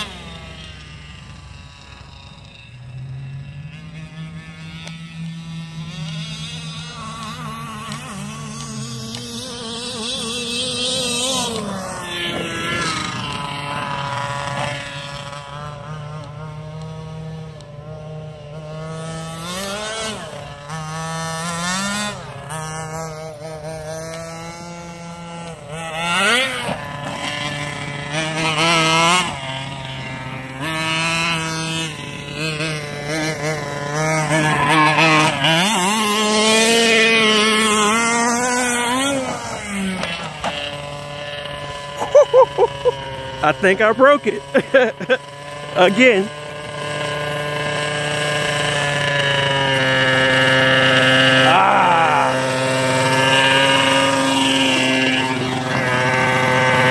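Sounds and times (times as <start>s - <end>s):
two-stroke engine revving: 0.0s - 56.9s.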